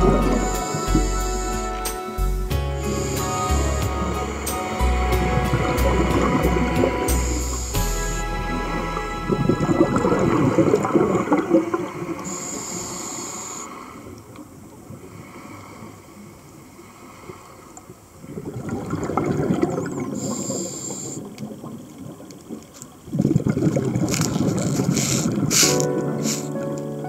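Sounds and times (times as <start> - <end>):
underwater bubbling exhalation: 0.0 - 7.8, 8.4 - 13.6, 18.2 - 26.6
regulator hiss: 0.0 - 10.6, 11.9 - 14.1, 20.1 - 21.3, 24.6 - 26.7.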